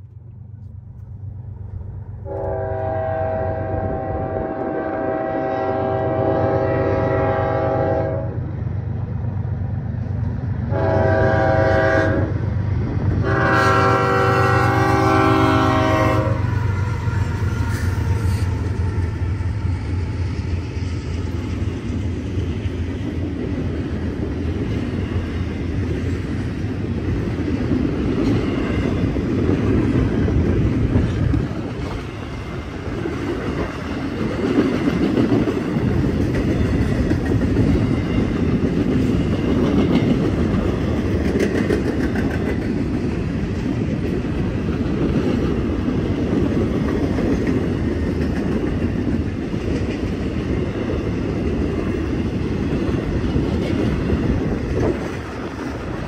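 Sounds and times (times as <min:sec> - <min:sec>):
train wheels rumbling on rails: 0:00.0 - 0:56.0
locomotive air horn blasts: 0:02.2 - 0:08.4, 0:10.7 - 0:12.3, 0:13.2 - 0:19.1.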